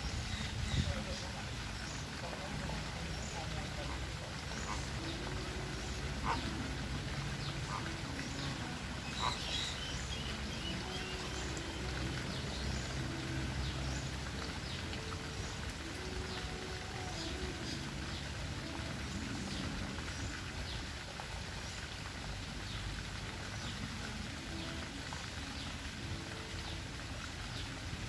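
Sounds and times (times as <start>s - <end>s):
flamingos honking: 2.2s - 20.1s.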